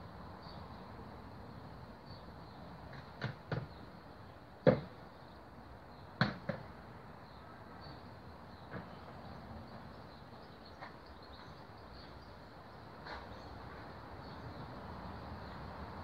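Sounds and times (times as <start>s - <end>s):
sharp knocks: 6.2s - 6.7s.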